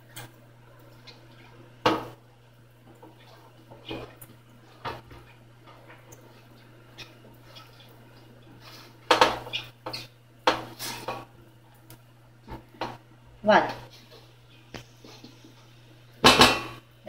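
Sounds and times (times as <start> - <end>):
brush scraping metal tray: 8.6 - 11.2.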